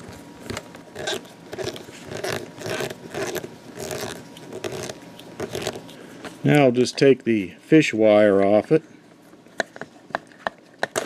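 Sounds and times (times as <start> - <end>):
screwdriver rasping scrape: 1.0 - 5.9.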